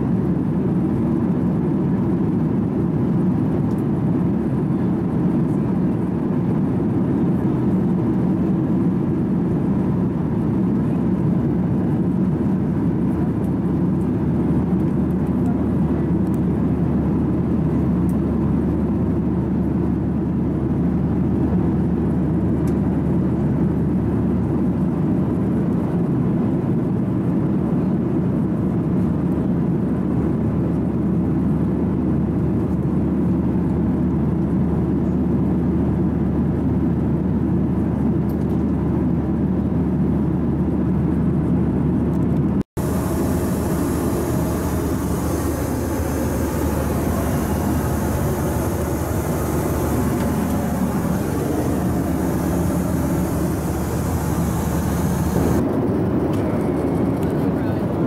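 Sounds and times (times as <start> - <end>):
airliner cabin drone: 0.0 - 26.8, 40.8 - 58.0.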